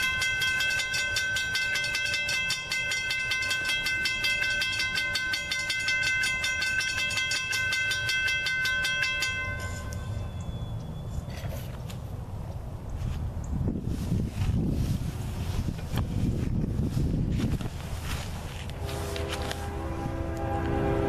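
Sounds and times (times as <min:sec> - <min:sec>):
railroad crossing bell ringing: 0:00.0 - 0:11.4, 0:18.8 - 0:21.0
low rumble: 0:14.8 - 0:21.0.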